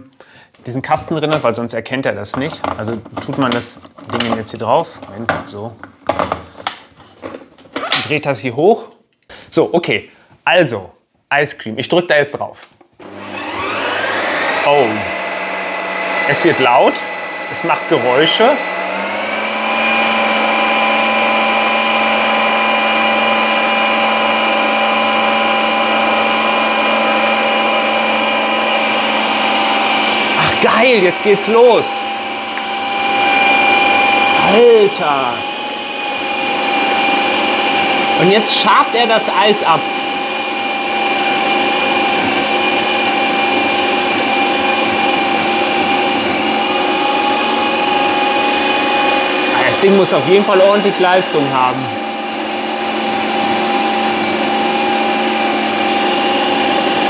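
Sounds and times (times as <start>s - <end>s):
ice cream maker motor whining: 13.0s - 57.0s.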